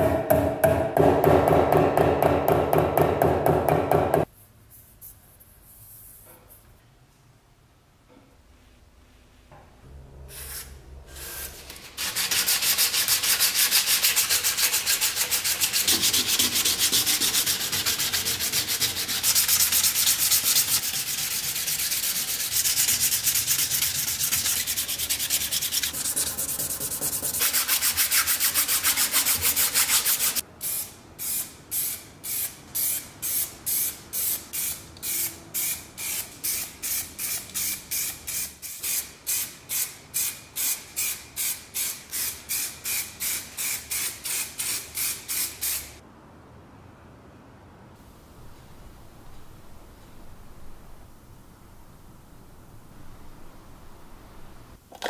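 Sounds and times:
sanding pad scrubbing metal: 0:11.2 - 0:30.4.

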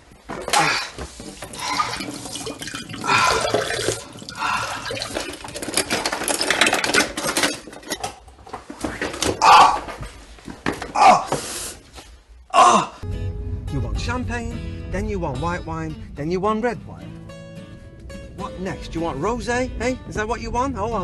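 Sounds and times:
hands rinsed under water: 0:00.6 - 0:05.5.

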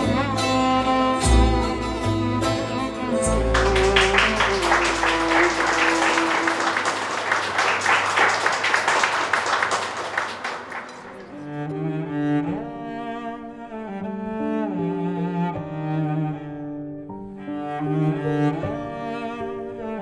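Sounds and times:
slow cello and strings melody: 0:00.0 - 0:07.2, 0:11.1 - 0:20.0
audience applause: 0:03.3 - 0:11.7.

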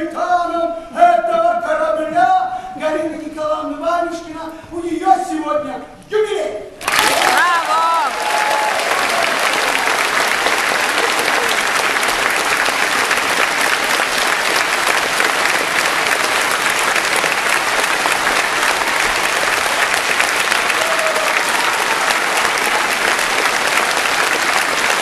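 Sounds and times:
audience applauding: 0:06.8 - 0:25.0.

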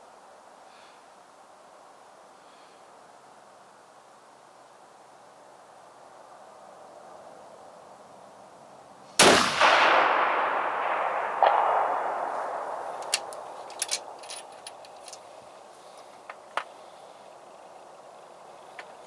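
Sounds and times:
rifle shot echoing: 0:09.2 - 0:14.2
rifle metallic clicks: 0:10.9 - 0:15.3.

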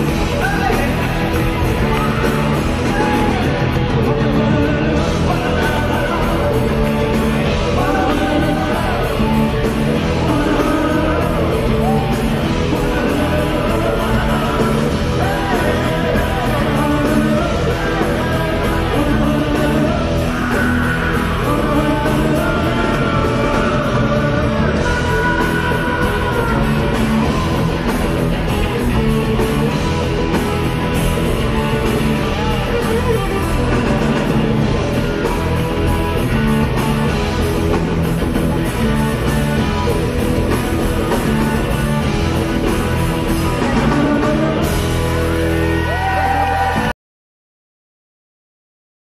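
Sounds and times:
person singing: 0:00.0 - 0:27.9, 0:40.8 - 0:46.9
drums: 0:00.0 - 0:46.9
electric guitars: 0:00.0 - 0:46.9.

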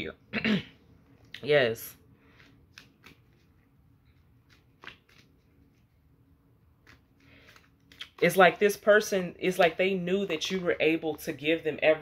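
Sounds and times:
cards flicking and tapping: 0:02.4 - 0:06.0, 0:06.8 - 0:08.4.

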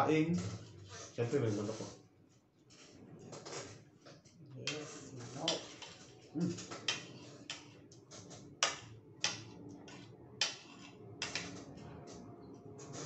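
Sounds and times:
metal spoon scraping plate: 0:04.6 - 0:12.2.

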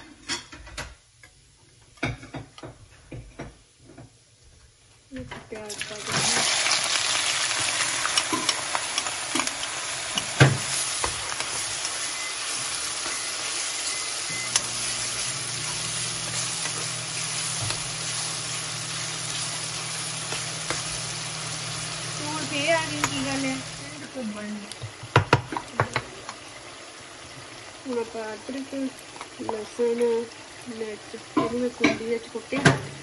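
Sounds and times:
onions sizzling in hot oil: 0:05.5 - 0:33.0
metal spoon scraping a pan: 0:13.0 - 0:18.6.

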